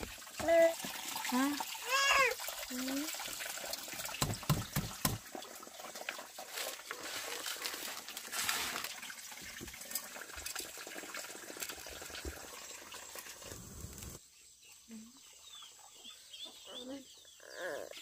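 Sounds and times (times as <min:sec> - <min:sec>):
water splashing and trickling: 0:00.0 - 0:14.2.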